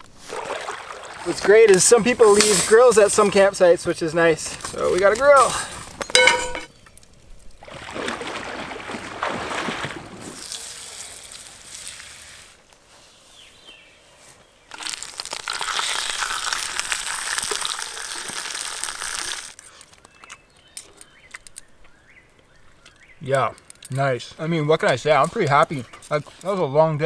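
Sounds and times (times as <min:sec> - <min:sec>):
crackling hiss: 0:01.2 - 0:07.6, 0:10.2 - 0:13.6, 0:14.2 - 0:21.8
butter sizzling in frying pan: 0:14.7 - 0:19.6.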